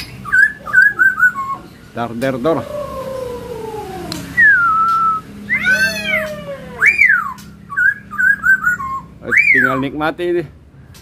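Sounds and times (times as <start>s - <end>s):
bird whistling song: 0.0s - 1.9s, 4.3s - 9.9s
bird chirping notes: 0.0s - 10.1s
bird meow-like calls: 2.4s - 9.9s.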